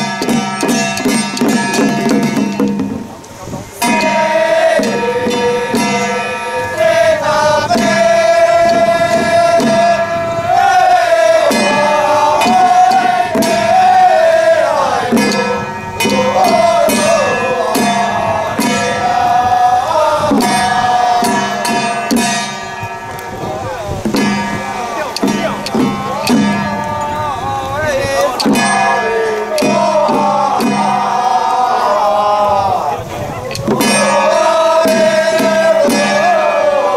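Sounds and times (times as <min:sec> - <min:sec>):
hand drums: 0:00.0 - 0:31.9, 0:33.4 - 0:36.9
shrill wind instrument melody: 0:03.4 - 0:36.9
cymbal strokes: 0:15.0 - 0:19.2.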